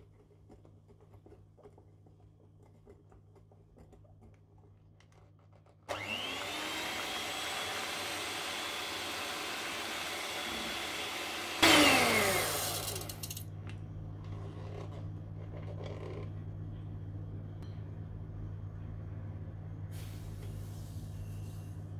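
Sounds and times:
electric mixer motor whining: 0:05.9 - 0:13.4
low hum: 0:13.5 - 0:21.9.

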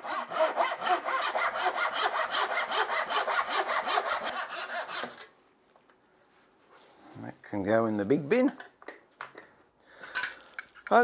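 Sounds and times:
handsaw cutting plywood: 0:00.0 - 0:05.3.

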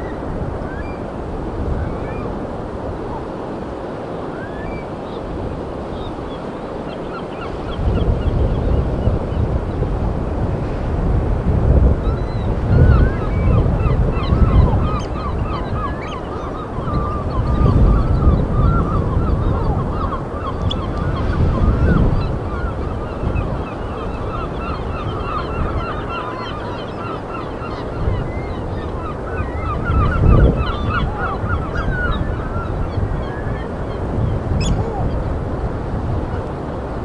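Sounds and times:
flock of birds calling: 0:12.2 - 0:35.3.

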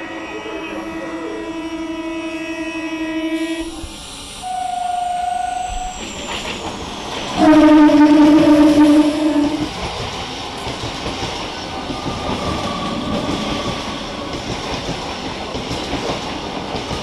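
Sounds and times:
train horn blasts: 0:00.0 - 0:06.1, 0:07.3 - 0:09.7
train wheels clattering: 0:05.8 - 0:17.0.

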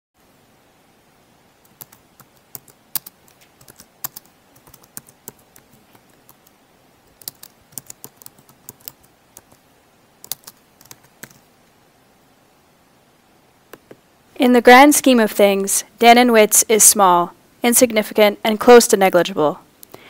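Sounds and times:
computer keyboard typing: 0:01.6 - 0:09.6, 0:10.2 - 0:11.5.

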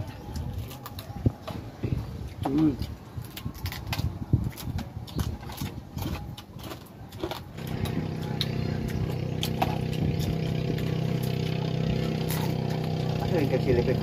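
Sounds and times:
engine running steadily: 0:07.5 - 0:14.0.

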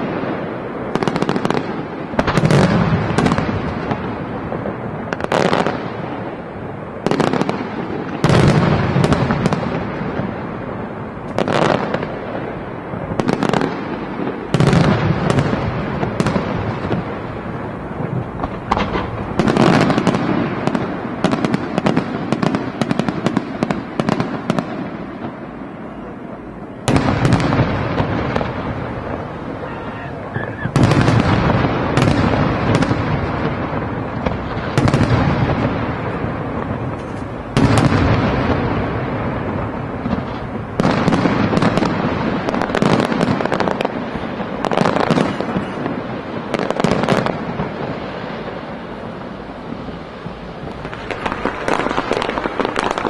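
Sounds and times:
firework shells bursting: 0:11.2 - 0:25.4, 0:26.6 - 0:53.0.

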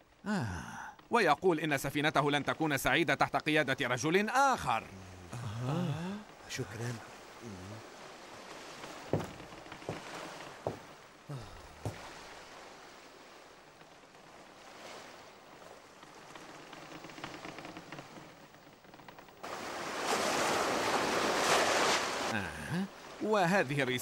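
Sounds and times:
sea washing: 0:00.8 - 0:24.0
surging waves: 0:00.9 - 0:24.0
light knocks: 0:09.1 - 0:10.9.

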